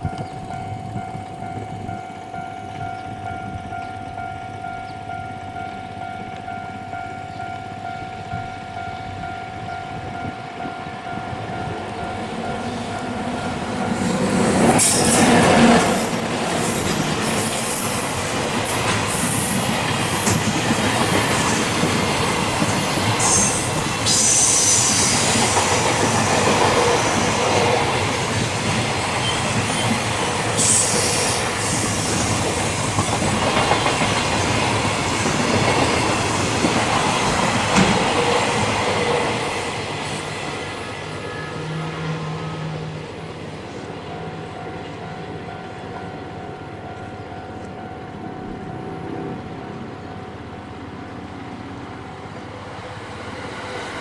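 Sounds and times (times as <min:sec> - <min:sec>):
electric locomotive passing: 0:00.0 - 0:54.0
high wheel screech: 0:23.2 - 0:25.6, 0:29.2 - 0:32.9.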